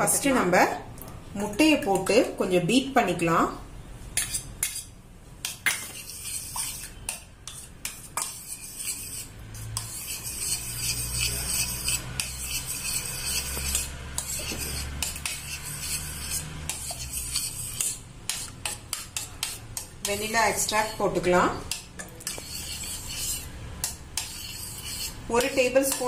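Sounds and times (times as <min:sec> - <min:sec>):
spoon clinking and scraping pan: 0:05.5 - 0:09.2.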